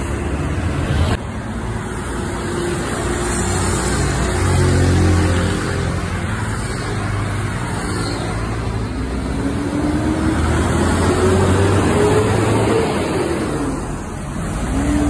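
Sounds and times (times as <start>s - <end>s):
bus diesel engine passing: 0.0s - 15.0s.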